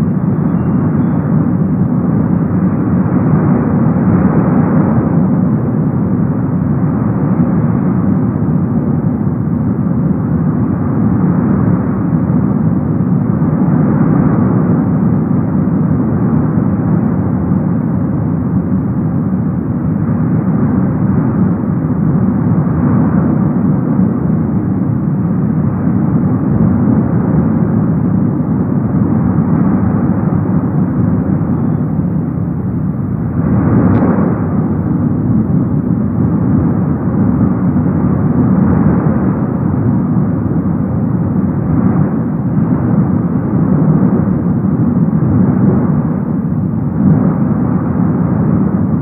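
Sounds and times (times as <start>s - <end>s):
lava fountain roaring: 32.0s - 49.0s.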